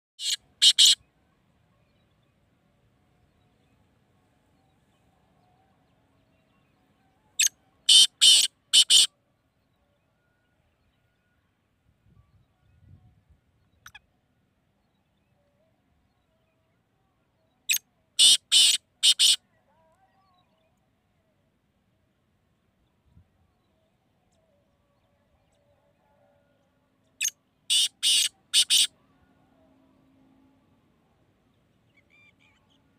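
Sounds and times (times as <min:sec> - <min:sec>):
harsh bird call: 0:00.2 - 0:01.0, 0:07.4 - 0:09.1, 0:18.2 - 0:19.4, 0:27.7 - 0:29.1.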